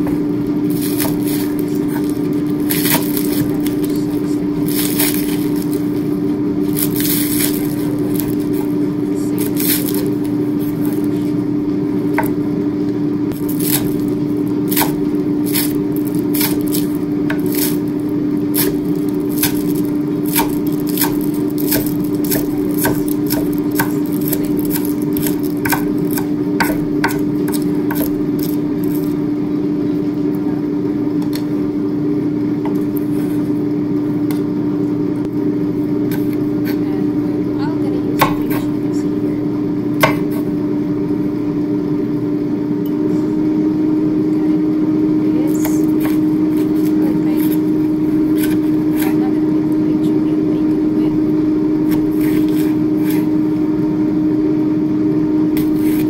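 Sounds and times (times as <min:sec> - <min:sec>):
steady low hum: 0:00.0 - 0:56.0
knife chopping on wooden board: 0:00.8 - 0:03.7, 0:14.7 - 0:17.8, 0:18.6 - 0:28.6, 0:38.2 - 0:38.6, 0:40.0 - 0:40.4, 0:48.3 - 0:49.2.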